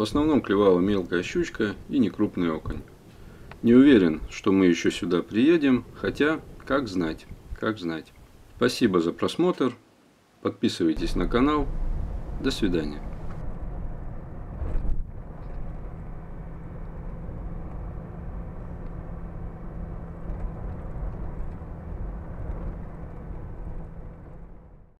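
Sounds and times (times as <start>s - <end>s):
vehicle engine rumble: 11.0s - 25.0s.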